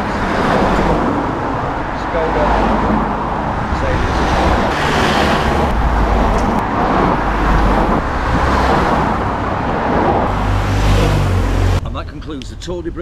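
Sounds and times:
vehicles passing close by: 0.0s - 13.0s.

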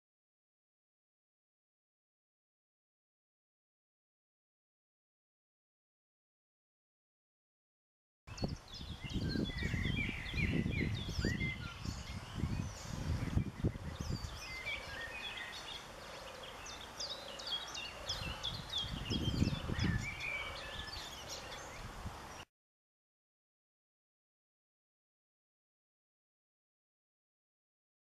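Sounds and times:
wind buffeting microphone: 8.3s - 15.7s, 17.6s - 22.4s
songbirds chirping: 8.3s - 22.5s.

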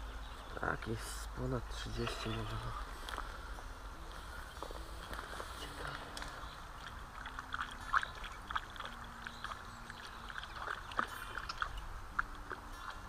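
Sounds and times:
river water trickling and lapping: 0.0s - 13.0s
small splashes in water: 5.6s - 13.0s.

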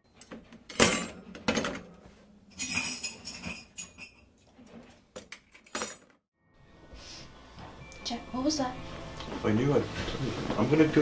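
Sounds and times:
knocks clinks and clattering: 0.2s - 6.2s.

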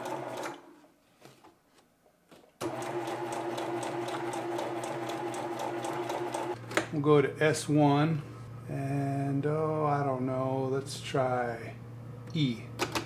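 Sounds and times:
sewing machine stitching: 0.0s - 0.6s, 2.6s - 6.6s.

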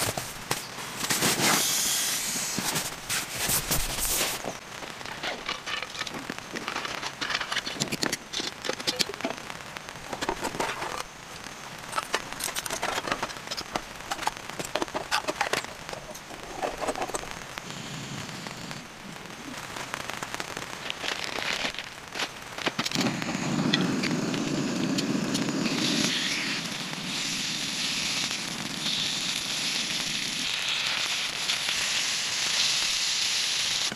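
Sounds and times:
plastic wrappers crinkling: 19.5s - 23.0s.

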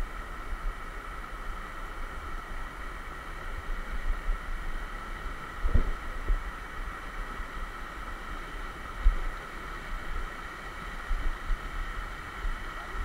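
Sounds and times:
low rumbles on microphone: 5.4s - 7.0s, 8.8s - 13.0s.

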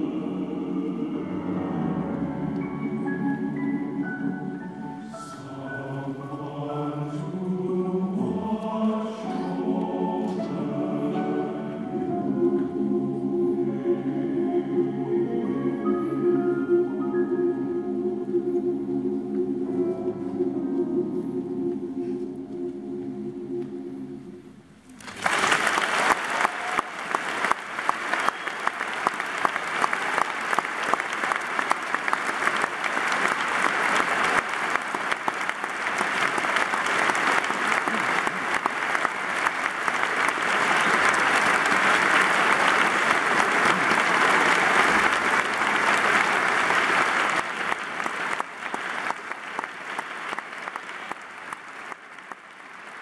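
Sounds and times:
audience applauding: 24.9s - 53.0s.

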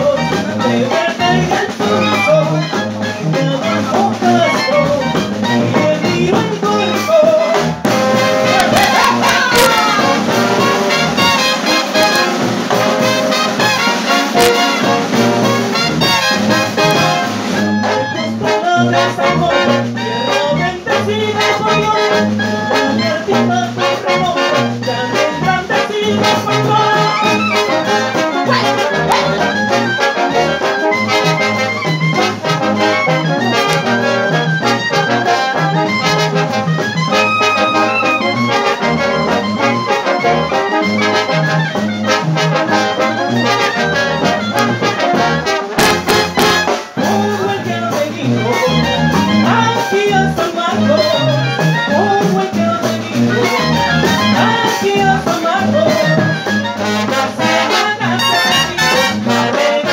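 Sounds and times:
brass band playing: 0.0s - 59.9s
trombones and trumpets melody: 0.0s - 59.9s
low bass line: 20.6s - 34.9s, 35.5s - 40.5s.

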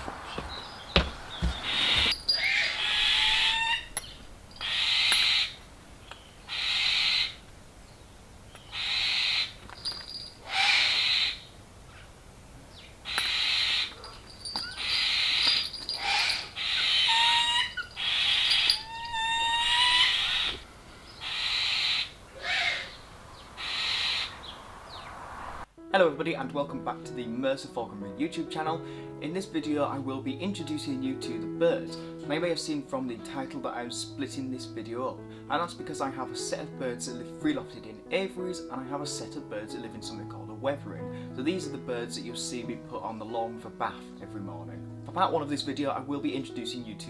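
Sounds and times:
bird chirping: 0.0s - 25.6s
barn owl screeching: 1.4s - 5.6s, 6.5s - 7.4s, 8.7s - 9.6s, 10.4s - 12.1s, 13.0s - 23.0s, 23.6s - 25.1s.

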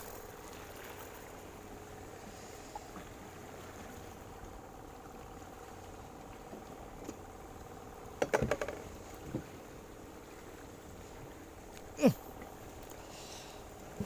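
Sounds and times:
faint steady hum: 0.0s - 14.0s
knocks and rattles on boat hull: 8.1s - 9.6s.

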